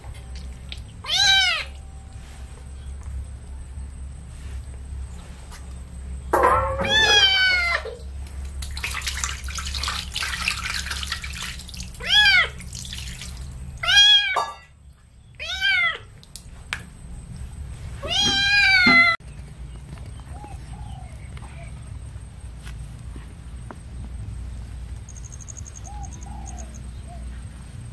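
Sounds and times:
kitten meowing: 1.0s - 1.7s, 6.8s - 7.9s, 12.0s - 12.6s, 15.4s - 16.1s, 18.0s - 19.2s
water splashing: 8.5s - 13.8s.

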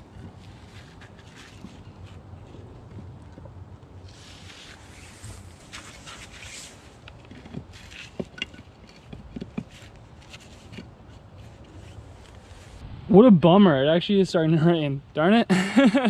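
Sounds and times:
light rustling: 0.1s - 12.8s.

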